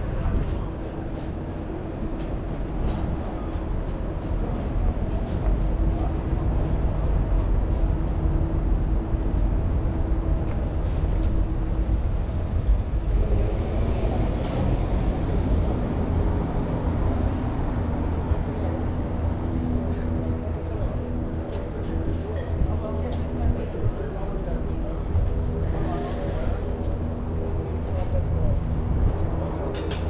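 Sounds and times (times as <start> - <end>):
large vehicle engine rumbling: 0.0 - 30.0.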